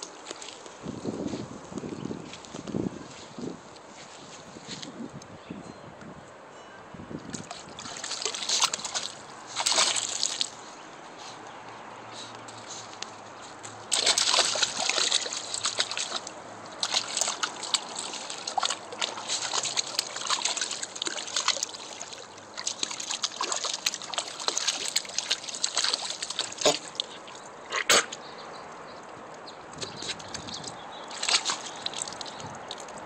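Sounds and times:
water splashing in a pool: 7.3 - 10.8, 12.6 - 27.9, 29.8 - 33.0.

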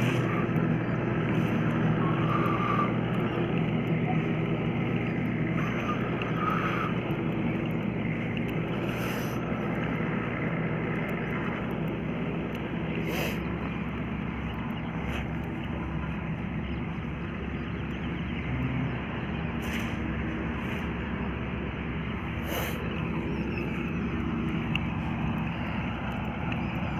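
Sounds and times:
faint clicks: 0.0 - 17.0, 22.5 - 26.9
tractor engine running: 0.0 - 26.9.

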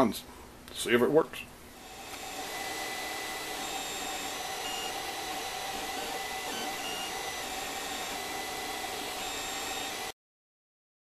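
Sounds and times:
fans whirring: 0.0 - 10.1
stepper motor whines: 1.8 - 10.1.

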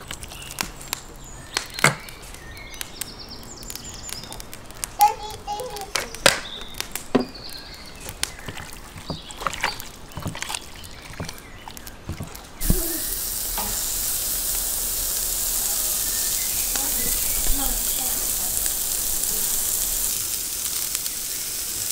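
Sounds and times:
meat sizzling on a hot grill: 0.0 - 9.3, 12.6 - 21.9
wet squelches of hands working meat: 6.1 - 21.7.

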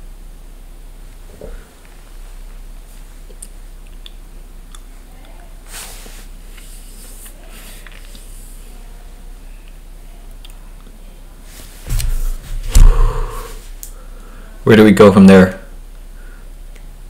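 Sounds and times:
mains hum: 0.0 - 17.0
breathy rush of noise: 11.5 - 14.6.

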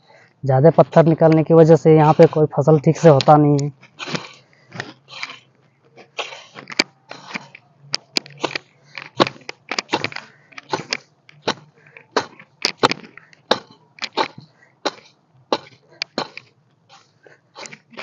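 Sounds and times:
hoe striking stony soil: 3.0 - 5.4, 6.0 - 17.0, 17.6 - 18.0.

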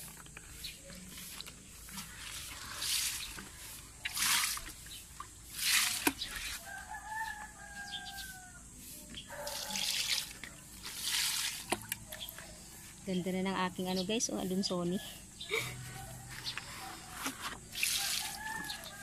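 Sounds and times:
water splashing onto plants: 0.9 - 6.7, 9.5 - 12.3, 17.7 - 19.0
rooster crowing: 6.6 - 8.8, 15.0 - 17.2, 17.8 - 19.0.

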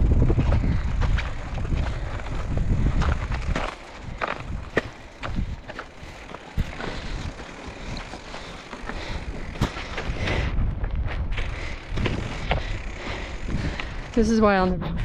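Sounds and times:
wind rumbling on microphone: 0.0 - 15.0
tyres crunching over gravel: 0.1 - 10.5.

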